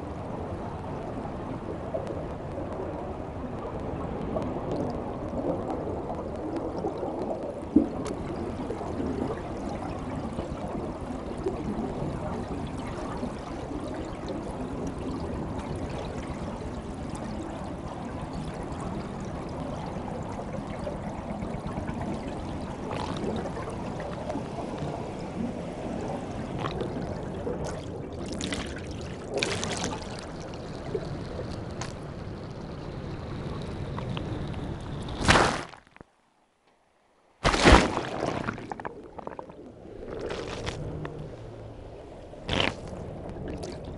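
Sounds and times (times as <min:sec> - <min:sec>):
underwater water rush and bubbles: 0:00.0 - 0:35.5, 0:37.4 - 0:43.9.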